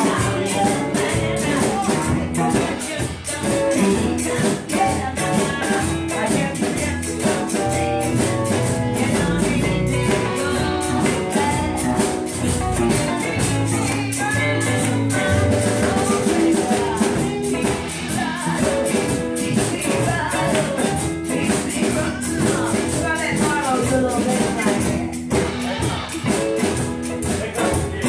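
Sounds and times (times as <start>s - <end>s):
blues band playing: 0.0s - 28.0s
quick high percussion hits: 0.0s - 28.0s
woman singing: 0.0s - 28.0s.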